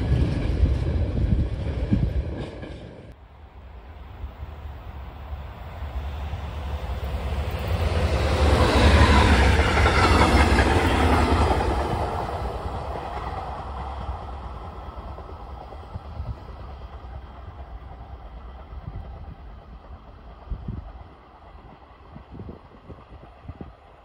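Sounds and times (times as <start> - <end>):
train passing at speed: 0.0 - 24.0.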